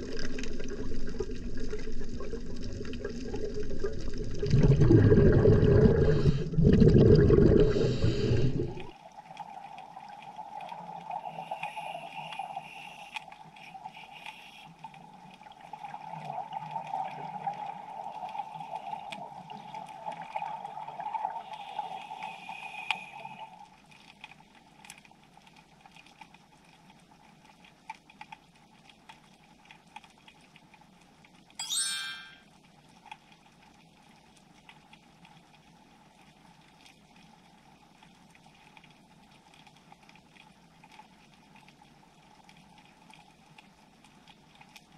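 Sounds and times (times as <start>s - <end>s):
underwater bubbling rush: 0.0s - 12.8s
underwater ambience: 0.0s - 44.9s
faint crackling clicks: 8.8s - 31.6s, 32.6s - 44.9s.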